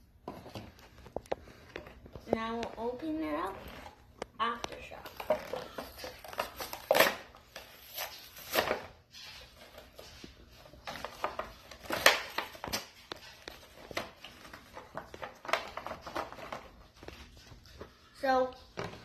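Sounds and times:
packaging crinkling and tearing: 3.6 - 10.0.

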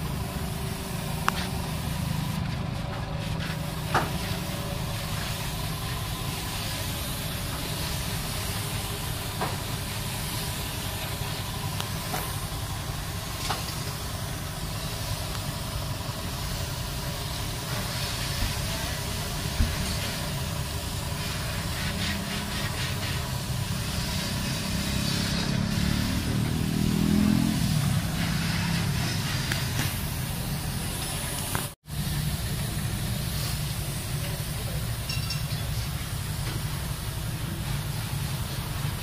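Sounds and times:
paint spray gun hissing: 0.0 - 2.6, 3.3 - 39.0.

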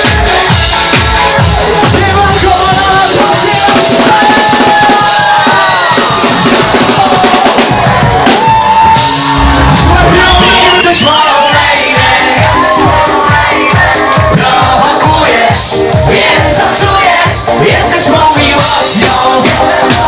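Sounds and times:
dance-pop music over club speakers: 0.0 - 20.0
man singing into a microphone: 9.8 - 12.6, 13.4 - 20.0.

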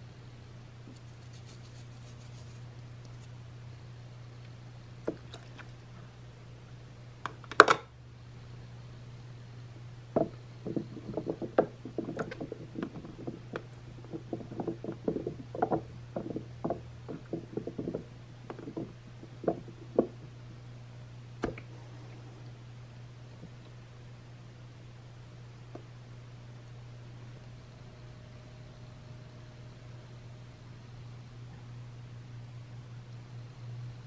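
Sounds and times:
steady low hum: 0.0 - 34.0
small knocks and taps in water: 10.2 - 20.3.

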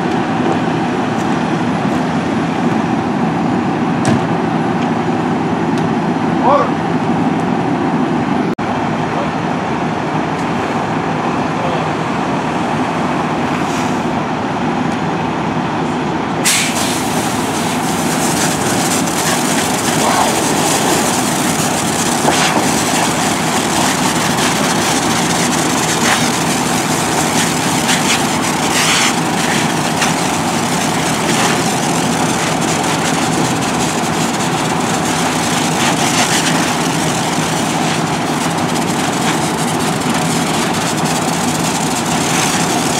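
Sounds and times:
diesel engine running: 0.0 - 42.9
hose spraying water: 16.4 - 42.9.

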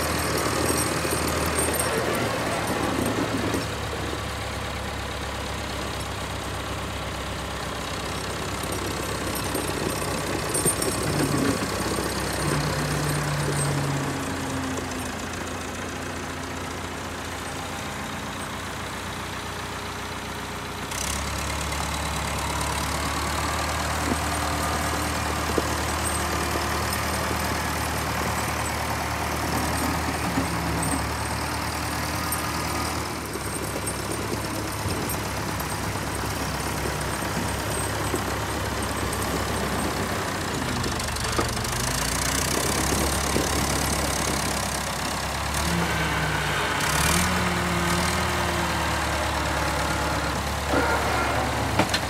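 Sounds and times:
diesel engine of loader: 0.0 - 52.0.

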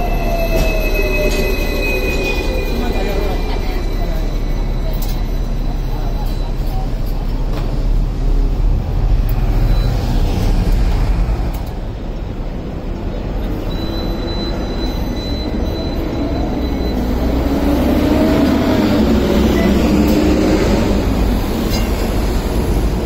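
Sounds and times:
low rumble of trams and traffic: 0.0 - 23.0
tram running on rails: 0.0 - 23.0.

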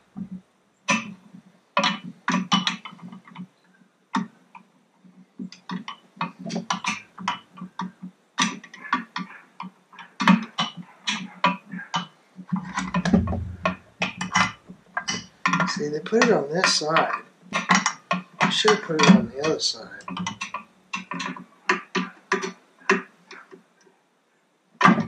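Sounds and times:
dull low thud: 12.8 - 14.5.

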